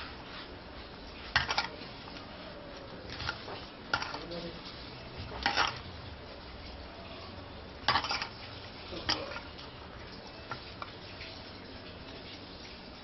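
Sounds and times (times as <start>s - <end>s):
metal bowl knocking and scraping: 1.3s - 1.8s, 3.1s - 4.2s, 5.2s - 5.8s, 7.8s - 8.4s.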